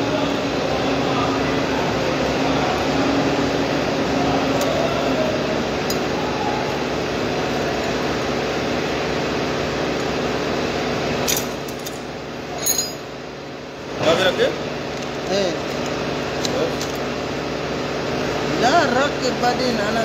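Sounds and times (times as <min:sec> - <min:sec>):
machine humming: 0:00.0 - 0:20.0
metal hand tools clinking: 0:12.6 - 0:13.1.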